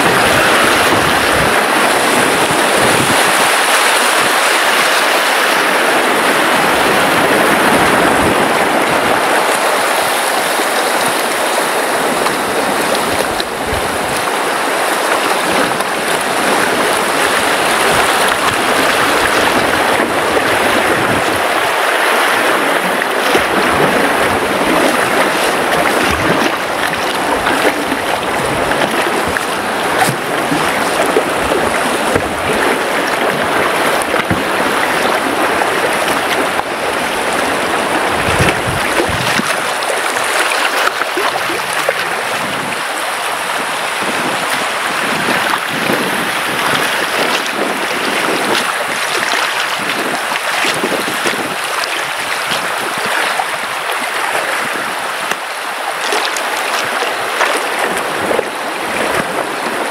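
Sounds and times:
river rapid rushing: 0.0s - 59.9s
low bumps under boat: 22.8s - 42.7s.

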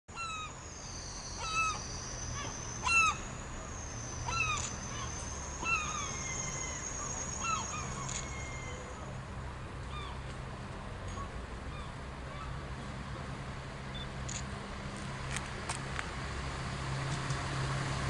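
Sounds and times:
birds calling: 0.1s - 9.1s
high-pitched whine: 0.2s - 9.1s.

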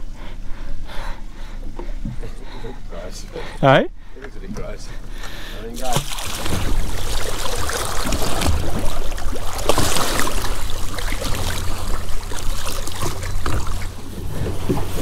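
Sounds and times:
steady low hum: 0.0s - 15.0s
water splashing and sloshing: 4.1s - 15.0s.

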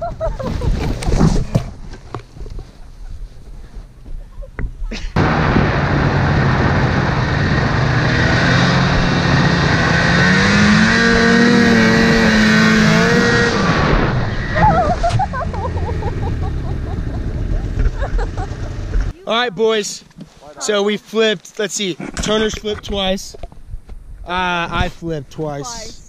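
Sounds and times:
snowmobile engine running: 5.2s - 19.1s.

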